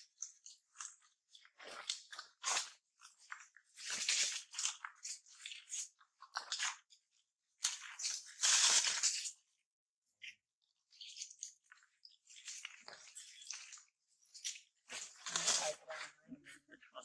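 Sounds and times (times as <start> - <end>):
monkeys chewing fruit: 0.1 - 7.0, 10.2 - 16.8.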